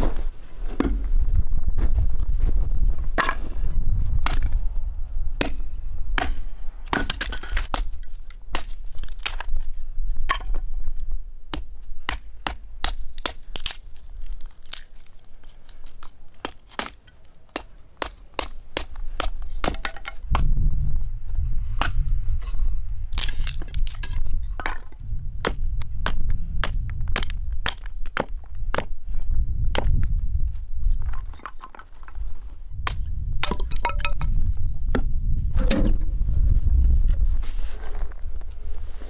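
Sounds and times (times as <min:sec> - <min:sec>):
hatchet chopping wood: 0:05.4 - 0:09.5, 0:11.5 - 0:13.8, 0:16.4 - 0:20.5, 0:23.2 - 0:29.0, 0:29.7 - 0:30.1, 0:32.8 - 0:34.0.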